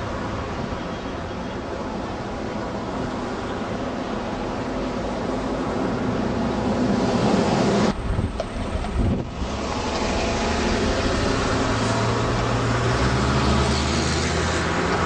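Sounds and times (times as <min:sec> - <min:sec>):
tram rumbling on track: 0:00.0 - 0:15.0
low motor hum: 0:07.7 - 0:15.0.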